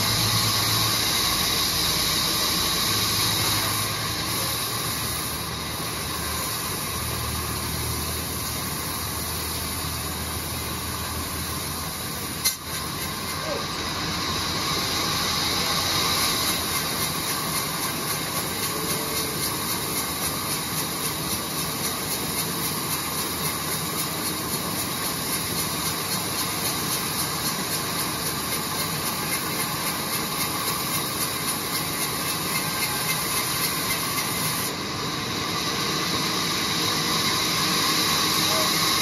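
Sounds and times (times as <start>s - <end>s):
band saw cutting wood: 14.4s - 34.8s.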